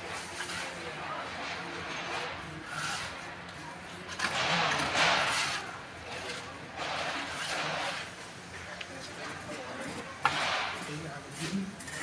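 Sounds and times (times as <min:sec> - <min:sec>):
trowel scraping plaster on wall: 0:02.6 - 0:03.2, 0:04.0 - 0:08.2, 0:10.8 - 0:12.0.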